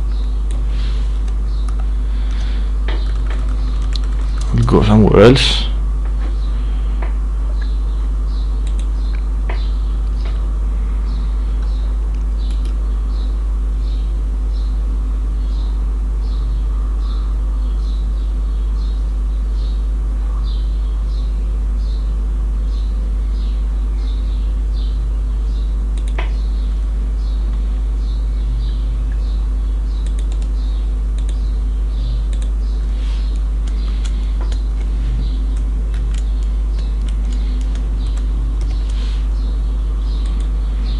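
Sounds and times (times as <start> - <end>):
faint buzz: 0.0 - 40.9
low electrical hum: 0.0 - 40.9
faint regular ticks: 1.2 - 4.5, 11.6 - 12.8, 25.9 - 26.5, 28.6 - 40.9.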